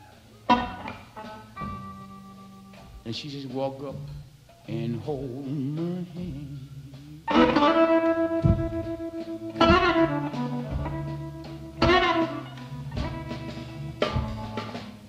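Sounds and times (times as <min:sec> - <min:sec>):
electric blues band playing: 0:00.0 - 0:15.0
electric guitar chords: 0:00.0 - 0:15.0
person singing: 0:03.0 - 0:08.2.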